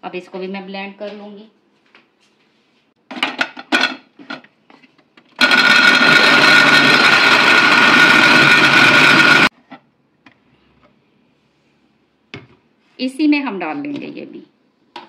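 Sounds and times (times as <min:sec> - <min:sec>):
blender motor whining: 0:05.4 - 0:09.5.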